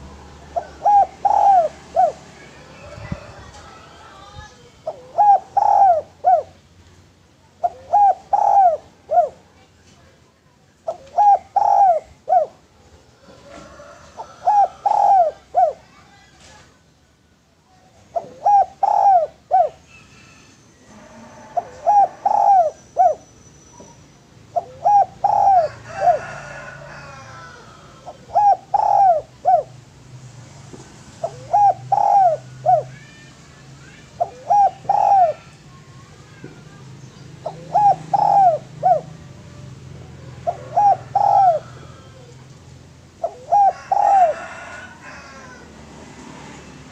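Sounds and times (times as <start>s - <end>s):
dove cooing: 0.0s - 6.6s, 7.5s - 9.5s, 10.9s - 16.0s, 18.1s - 23.2s, 24.5s - 29.8s, 31.2s - 33.1s, 34.0s - 35.7s, 37.4s - 45.7s.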